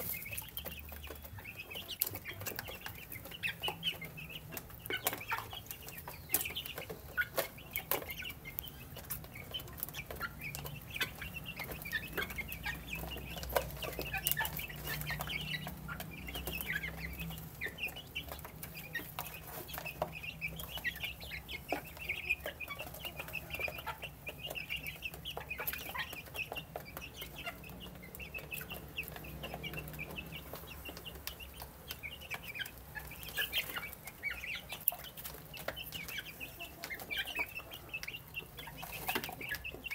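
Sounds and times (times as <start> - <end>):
beaks pecking on wood: 0.0 - 39.9
chicks cheeping: 0.0 - 39.9.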